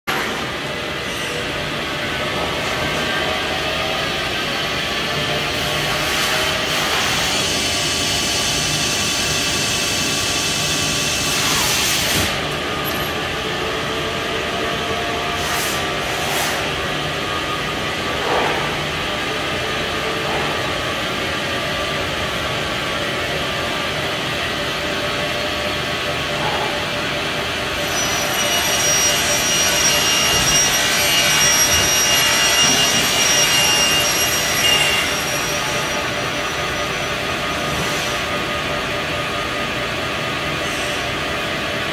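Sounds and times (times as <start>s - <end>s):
lathe humming: 27.2s - 40.5s
thin high whine: 27.7s - 38.2s.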